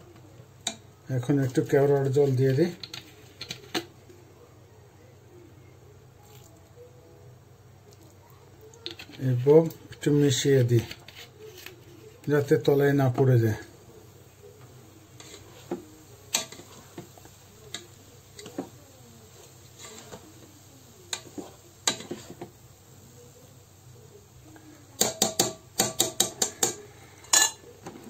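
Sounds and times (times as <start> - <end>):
spatula scraping rice in pot: 15.1 - 17.1, 19.6 - 20.2, 21.1 - 22.6
spatula tapping pot: 15.2 - 18.8, 21.1 - 22.6, 25.0 - 28.0.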